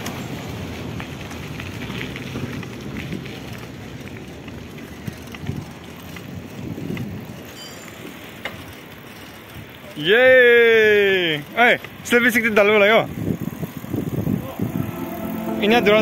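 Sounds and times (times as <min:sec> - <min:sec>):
bike tyres rolling on gritty road: 0:00.0 - 0:14.5
wind on microphone: 0:13.2 - 0:15.0.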